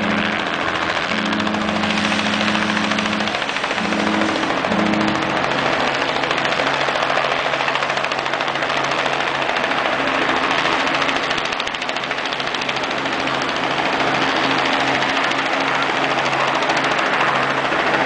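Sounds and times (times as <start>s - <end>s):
ship horn low note: 0.0s - 6.0s
rushing noise with fast flutter: 0.0s - 18.0s
higher horn note: 1.1s - 5.6s.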